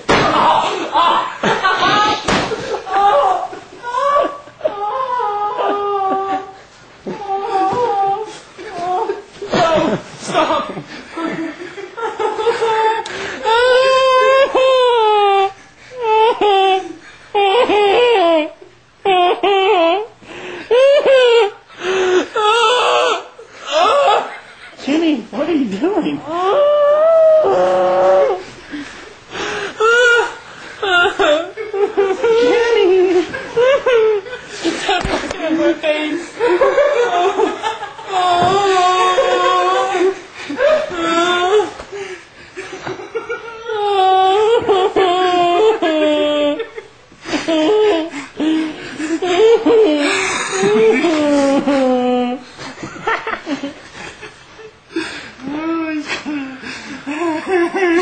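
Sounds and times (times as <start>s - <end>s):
man wailing and sobbing: 0.1s - 11.4s, 12.2s - 24.5s, 26.2s - 28.5s, 29.7s - 34.4s, 35.9s - 41.8s, 43.2s - 52.4s.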